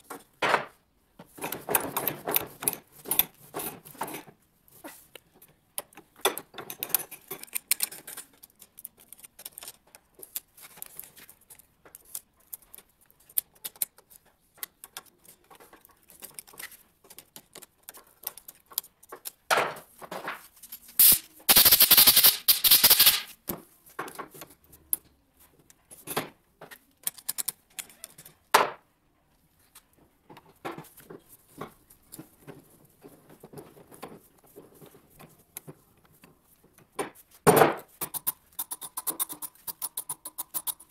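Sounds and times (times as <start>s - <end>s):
pipe threader ratcheting: 21.0s - 23.3s.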